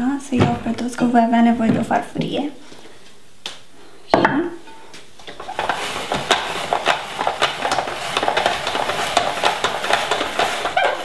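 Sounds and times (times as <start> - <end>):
spiralizer crunchy crackle: 5.3 - 11.0.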